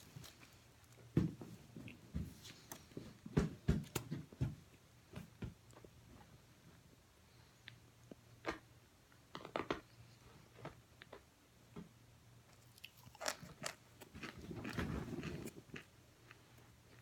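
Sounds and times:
person chewing crunchy food: 12.5 - 17.0.

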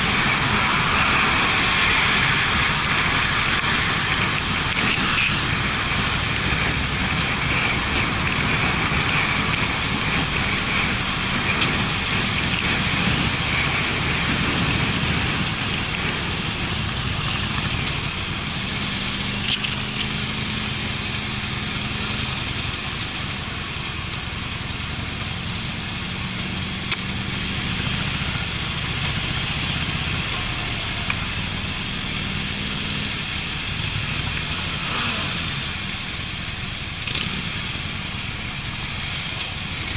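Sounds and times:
wind rush on microphone: 0.0 - 26.4
motorcycle engine running: 0.0 - 39.9.

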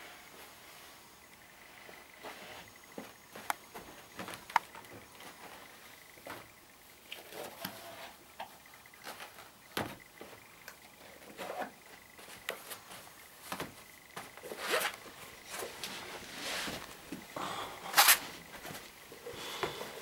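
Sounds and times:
shoes tapping and knocking: 9.0 - 10.4, 12.2 - 14.5.

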